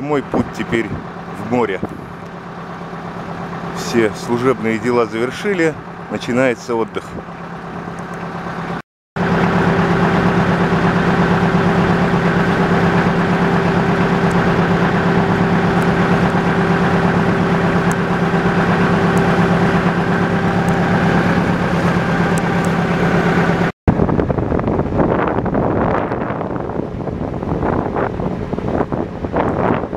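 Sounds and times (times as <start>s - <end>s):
motor boat engine droning: 0.0s - 29.9s.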